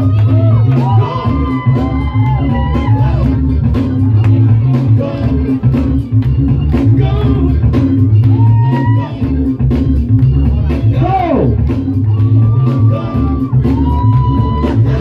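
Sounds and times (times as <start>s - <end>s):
heavy bass beat with drums: 0.0s - 15.0s
person singing: 4.0s - 9.6s, 12.1s - 15.0s.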